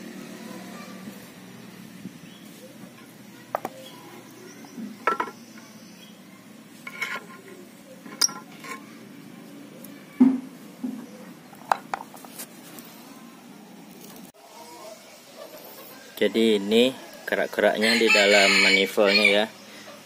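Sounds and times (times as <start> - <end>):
metal rod scraping and knocking: 6.8 - 8.9.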